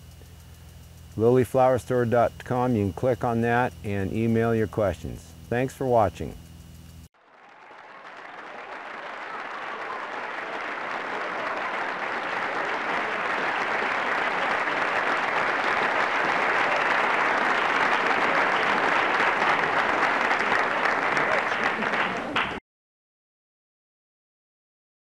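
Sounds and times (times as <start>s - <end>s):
applause: 7.2s - 22.6s.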